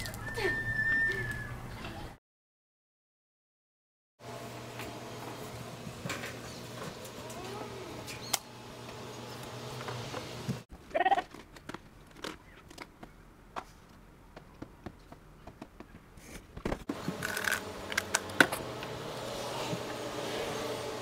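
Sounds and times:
handling noise clicks and scrapes: 16.2 - 20.0.

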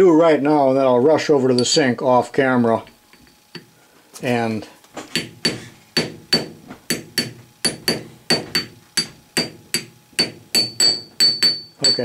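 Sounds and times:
hammer tapping on metal: 2.8 - 3.7, 5.1 - 12.0.

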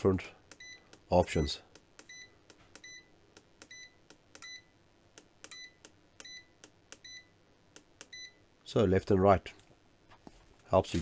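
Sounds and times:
multimeter key beeps: 0.5 - 1.0, 2.0 - 4.7, 5.5 - 7.3, 8.0 - 8.4.

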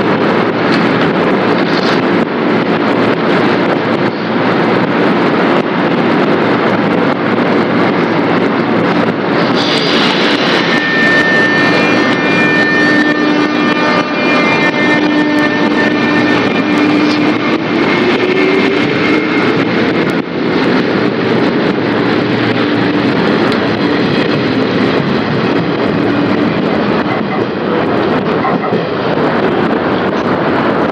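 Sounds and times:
train wheels on rails: 0.0 - 30.9
electric train motor whine: 8.3 - 28.3.

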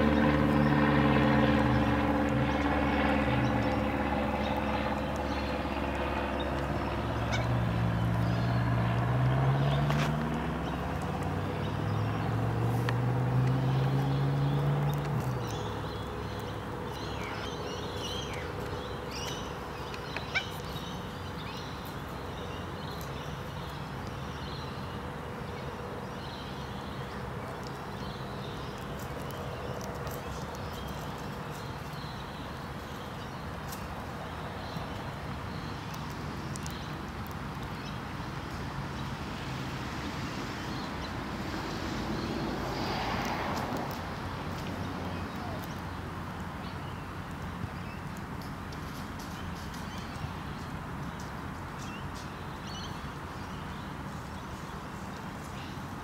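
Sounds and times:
vehicle engine rising in pitch: 0.0 - 16.5
faint bird calls: 6.4 - 8.6, 15.5 - 23.1.

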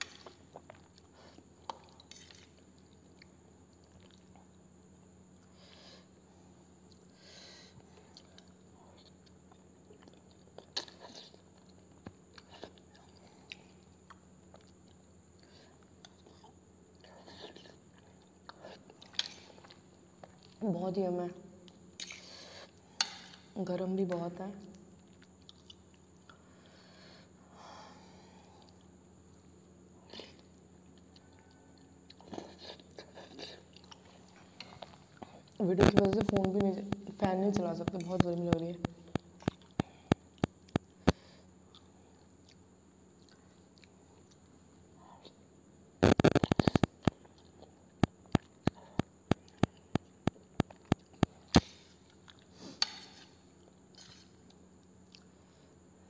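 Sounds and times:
chewing: 0.0 - 4.6, 7.8 - 20.6, 24.6 - 26.8, 30.1 - 36.7, 38.8 - 44.5, 46.0 - 55.4.

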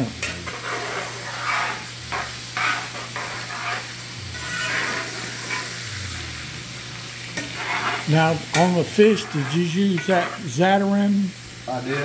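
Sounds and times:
shrimp sizzling in oil: 0.0 - 12.0
metal spoon scraping pan: 0.2 - 5.8, 7.4 - 10.5.

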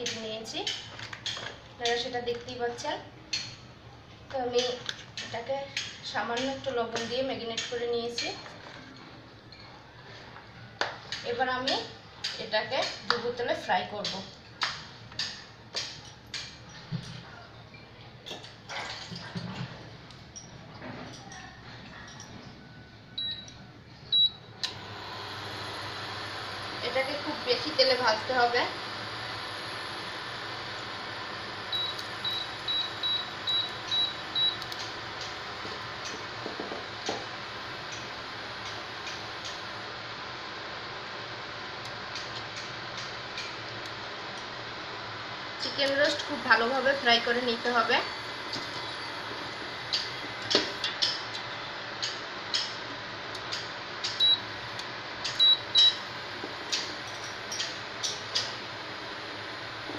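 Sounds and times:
cooling fan running: 0.0 - 59.9
cooktop control panel beeping: 23.2 - 39.8, 54.0 - 57.8.

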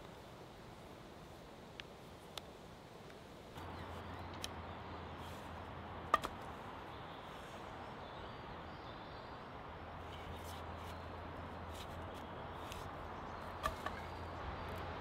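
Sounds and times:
steady hiss: 0.0 - 8.1.

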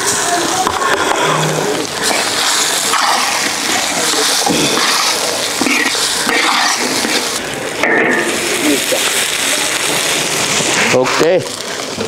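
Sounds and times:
egg sizzling in hot oil: 0.8 - 11.9
metal spatula stirring in wok: 2.0 - 8.6.

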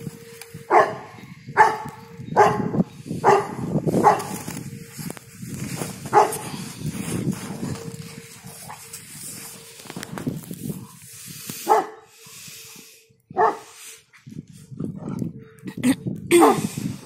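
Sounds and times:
dog barking: 0.7 - 4.4, 6.1 - 6.4, 11.6 - 12.2, 13.3 - 13.8, 16.3 - 16.7.

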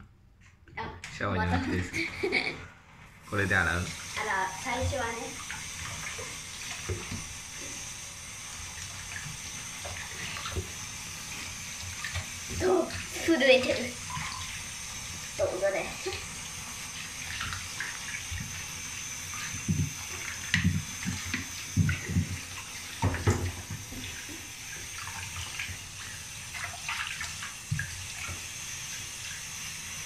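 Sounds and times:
tap water running into basin: 1.1 - 2.5, 3.1 - 30.0
water splashing and sloshing: 3.0 - 30.0.

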